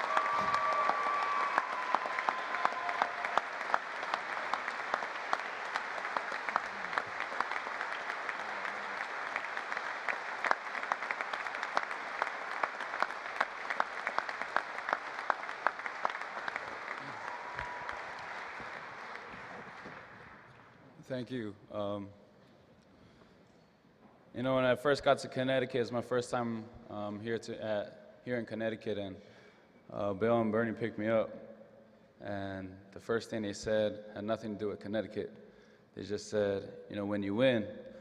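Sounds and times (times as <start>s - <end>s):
audience applauding: 0.0s - 20.8s.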